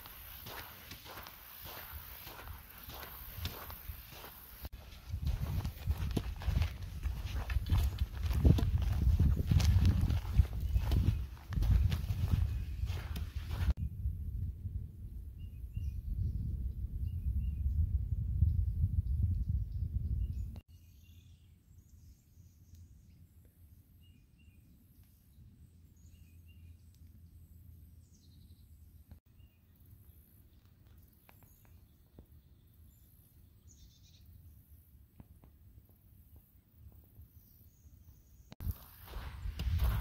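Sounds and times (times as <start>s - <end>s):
wind buffeting microphone: 0.0s - 20.6s, 38.6s - 40.0s.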